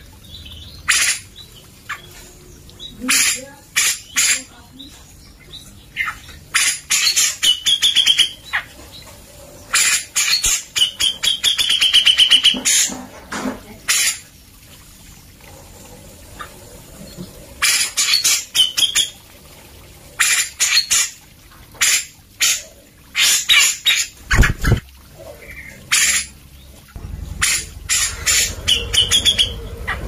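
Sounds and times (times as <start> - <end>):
bird harsh rapid chattering: 27.4 - 30.0.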